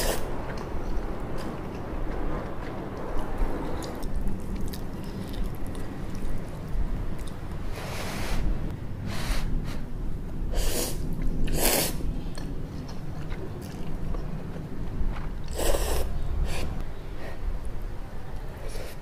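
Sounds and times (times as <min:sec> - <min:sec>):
chewing: 0:00.5 - 0:07.5, 0:12.3 - 0:16.0.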